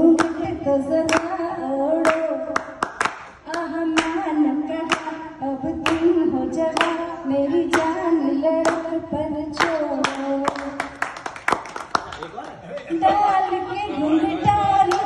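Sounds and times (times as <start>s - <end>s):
hand claps: 0.2s - 0.4s, 1.1s - 1.4s, 2.0s - 4.2s, 4.8s - 5.2s, 5.8s - 7.0s, 7.7s - 8.0s, 8.6s - 8.9s, 9.6s - 12.6s.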